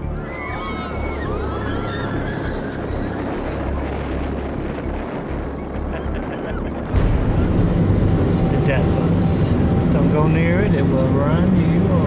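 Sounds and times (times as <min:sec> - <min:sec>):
wind rumble on microphone: 0:00.3 - 0:12.0
geyser rushing water and steam: 0:00.8 - 0:12.0
people talking: 0:08.2 - 0:12.0.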